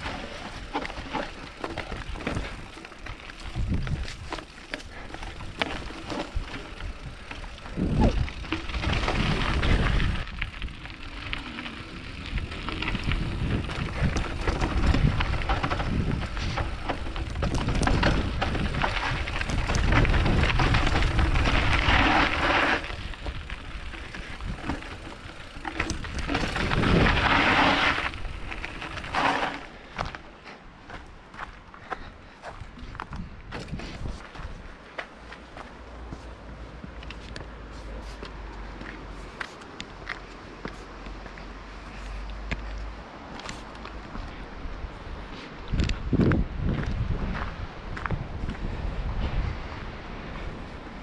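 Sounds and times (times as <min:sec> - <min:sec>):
wind rumble on microphone: 0:00.0 - 0:30.2, 0:32.6 - 0:34.8, 0:41.1 - 0:51.0
bike rattling over bumps: 0:00.0 - 0:30.3
bike tyres rolling on dirt: 0:00.0 - 0:51.0.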